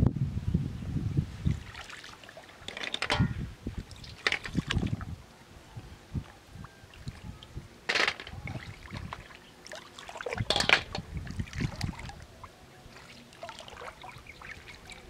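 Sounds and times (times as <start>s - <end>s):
river water splashing: 1.6s - 5.0s, 7.8s - 15.0s.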